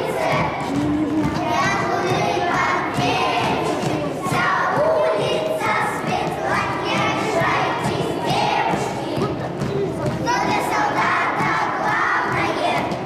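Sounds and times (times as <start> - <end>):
children chanting: 0.0 - 13.0.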